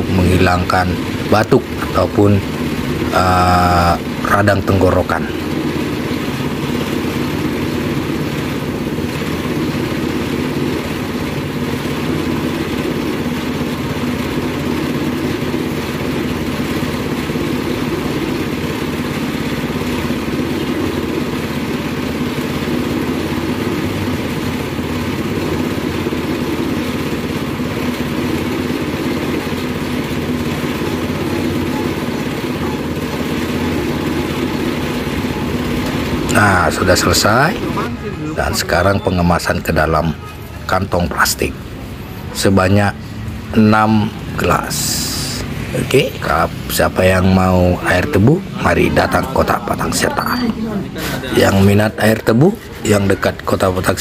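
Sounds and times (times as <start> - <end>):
motorized juice press running: 0.0 - 54.0.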